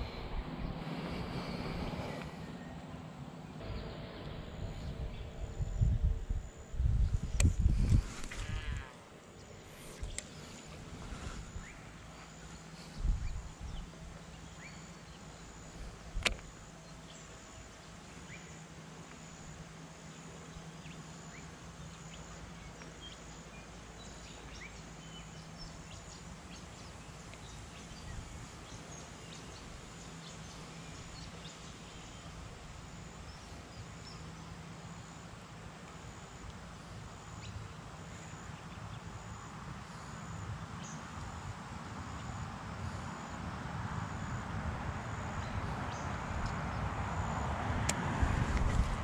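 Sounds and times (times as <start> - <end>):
low wind rumble: 0.0 - 20.8, 25.3 - 35.8, 38.4 - 49.0
high pulsing insect call: 0.0 - 49.0
sharp click: 16.2 - 16.5.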